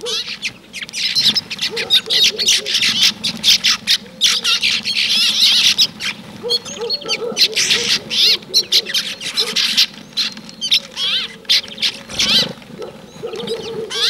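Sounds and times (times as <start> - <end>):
songbirds chirping: 0.0 - 14.0
wavering bird call: 0.0 - 14.0.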